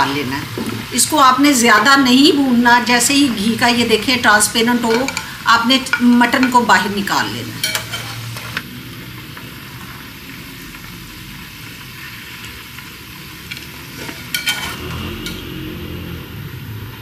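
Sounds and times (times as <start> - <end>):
meat sizzling in hot fat: 0.0 - 16.7.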